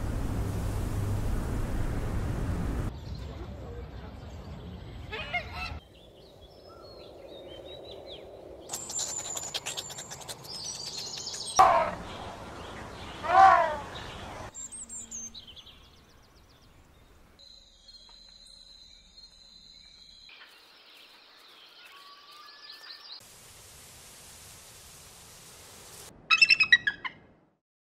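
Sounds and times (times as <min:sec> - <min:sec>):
bird chirps and whistled calls: 0:08.7 - 0:15.8, 0:26.3 - 0:27.2
loud animal calls: 0:11.5 - 0:12.1, 0:13.2 - 0:14.1.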